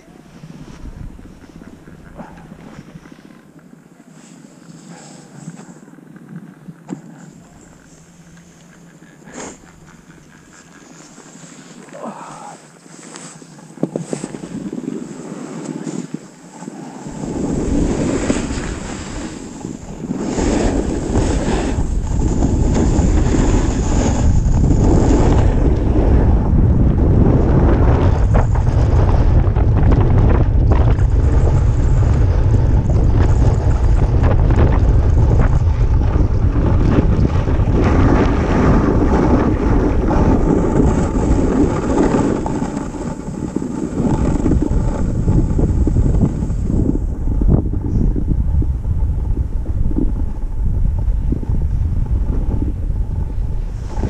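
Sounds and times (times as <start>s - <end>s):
wind buffeting microphone: 0.0s - 3.4s, 13.4s - 54.0s
ski edges scraping packed snow: 0.2s - 3.5s, 4.1s - 5.9s, 6.6s - 26.1s, 34.9s - 47.5s, 53.4s - 54.0s.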